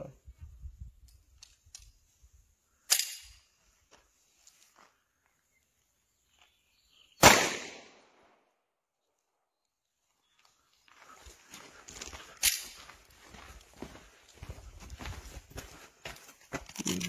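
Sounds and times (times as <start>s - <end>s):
pistol shot with echo: 7.2s - 8.3s.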